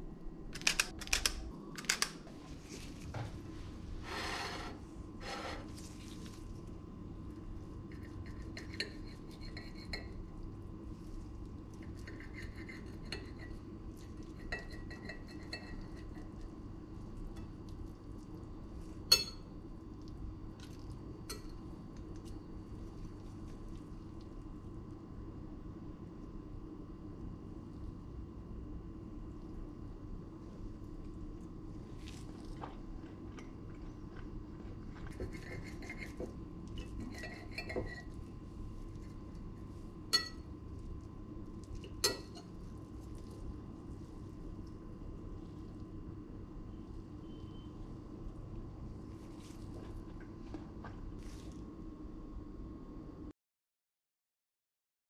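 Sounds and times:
cutlery scraping ceramic plate: 4.0 - 5.8, 35.0 - 38.1.

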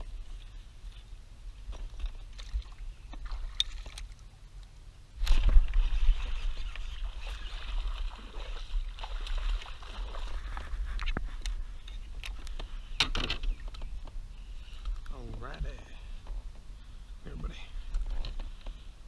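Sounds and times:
fish splashing in water: 5.3 - 10.6.

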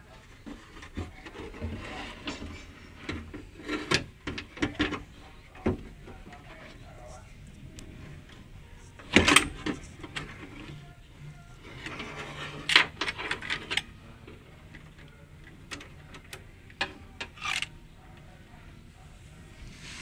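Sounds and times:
metal clicks and scrapes: 0.4 - 5.2, 11.6 - 13.9, 14.7 - 17.8.

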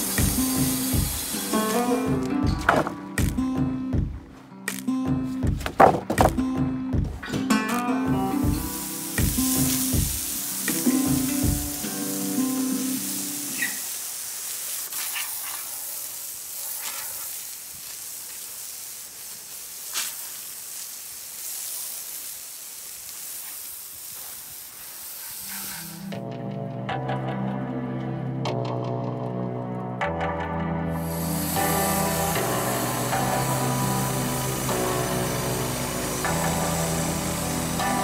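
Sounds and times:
hose spray hissing on wet wood: 0.0 - 3.4, 7.8 - 26.2, 31.0 - 38.0
guitar music: 0.0 - 13.8, 26.0 - 38.0.

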